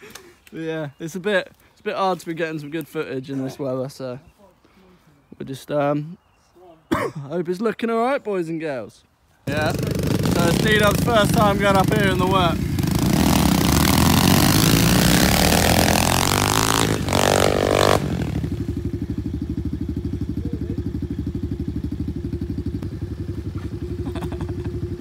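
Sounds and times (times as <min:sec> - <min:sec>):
pit bike engine idling: 0:09.5 - 0:14.8, 0:15.7 - 0:25.0
pit bike engines revving: 0:09.5 - 0:25.0.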